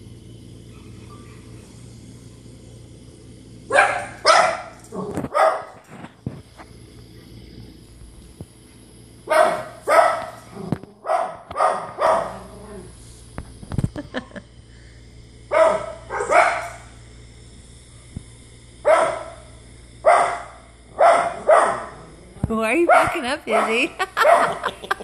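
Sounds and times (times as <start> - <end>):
small dog barking: 3.7 - 5.8, 9.3 - 10.4, 11.0 - 12.5, 15.5 - 16.8, 18.8 - 19.4, 20.0 - 22.0, 22.9 - 24.7.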